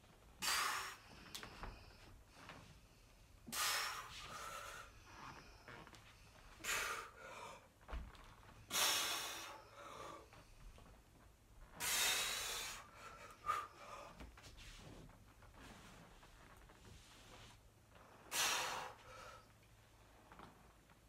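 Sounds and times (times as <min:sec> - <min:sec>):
man breathing forcefully: 0:00.4 - 0:02.1, 0:03.4 - 0:05.4, 0:06.5 - 0:07.8, 0:08.6 - 0:10.4, 0:11.8 - 0:14.2, 0:18.2 - 0:19.5.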